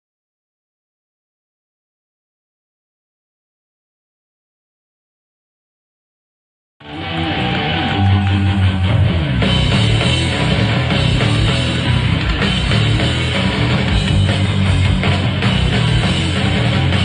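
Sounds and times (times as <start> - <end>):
bass guitar: 6.8 - 17.0
distorted electric guitars: 6.8 - 17.0
drum kit: 7.4 - 17.0.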